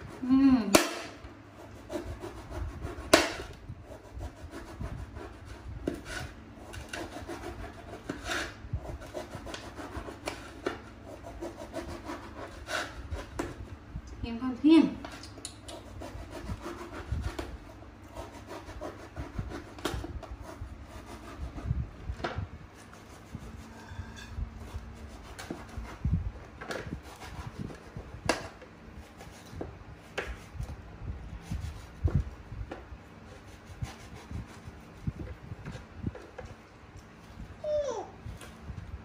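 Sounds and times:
knife sawing through fruit rind: 1.6 - 13.3, 15.7 - 19.8, 20.4 - 21.7.

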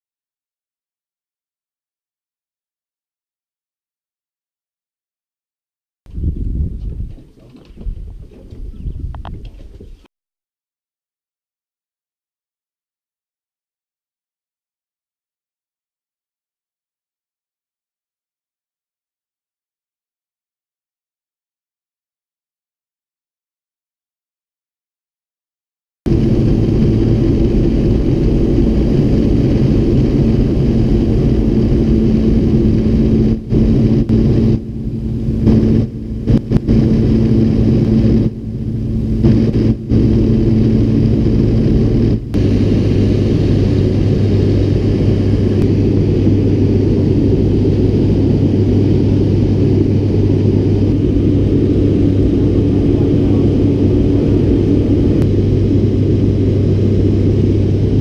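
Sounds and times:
propeller plane engine drone: 26.1 - 58.0.

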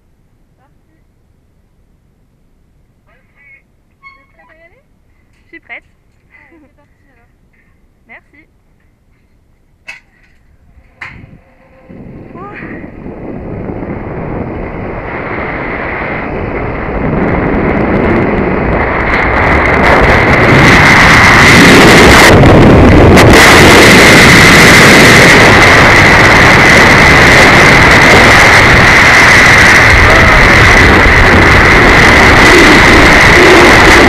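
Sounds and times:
steady high whine: 0.0 - 34.0
wind rushing over microphone: 10.1 - 34.0.

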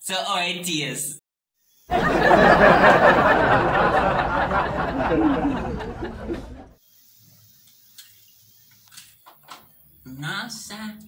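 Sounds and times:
crowd laughter laugh track: 1.9 - 6.8.

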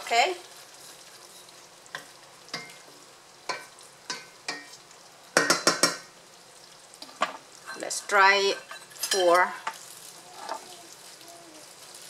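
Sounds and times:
wooden spoon scraping a pan: 0.4 - 2.7.

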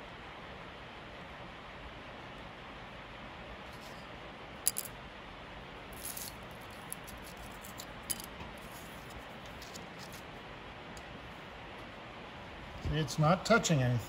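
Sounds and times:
rustle of fingers: 5.9 - 10.4.

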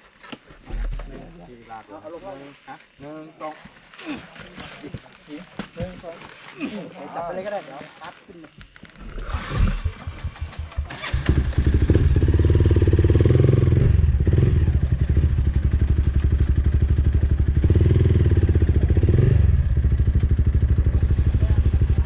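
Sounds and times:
dirt bike engine running and revving: 9.0 - 22.0.

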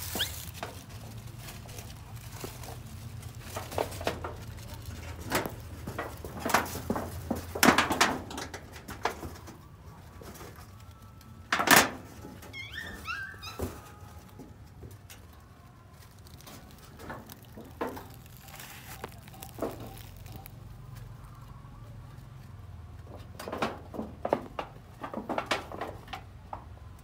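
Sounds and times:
young animal squeaking: 0.0 - 0.5, 12.5 - 14.2, 18.1 - 20.8
rustling in dry leaves: 0.0 - 22.5.

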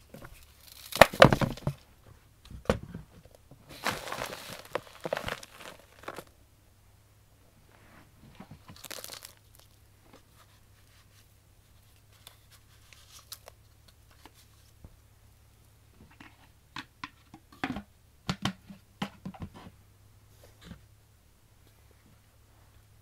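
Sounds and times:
light clicks and crinkles: 3.2 - 6.3, 8.3 - 14.8.

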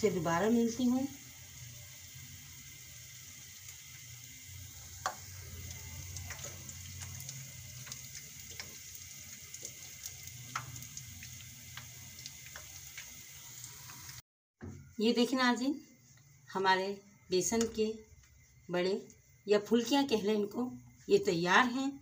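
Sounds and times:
fritters sizzling in oil: 0.0 - 14.2.

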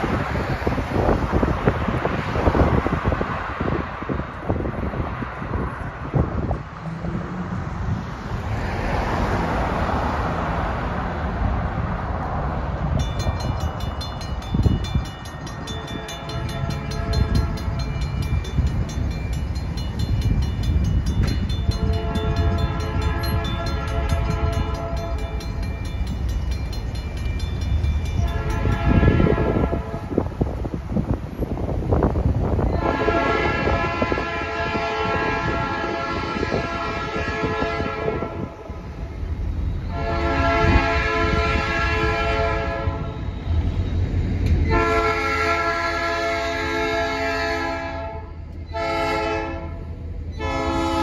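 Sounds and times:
car passing: 0.0 - 34.0
mechanical crossing bell ringing: 12.9 - 28.8
locomotive horn blasts: 15.7 - 18.2, 21.6 - 25.6, 28.2 - 30.2, 32.7 - 38.6, 39.9 - 43.3, 44.6 - 51.0.

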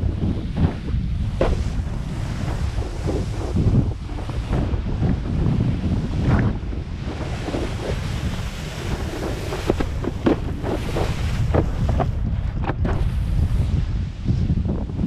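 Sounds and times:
board slapping water: 0.0 - 15.0
wind buffeting microphone: 0.0 - 15.0
rush of water spray: 1.2 - 12.1.

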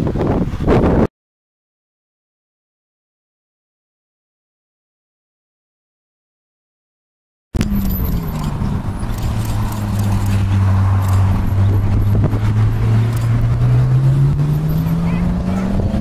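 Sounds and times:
race car engine accelerating: 7.6 - 16.0.

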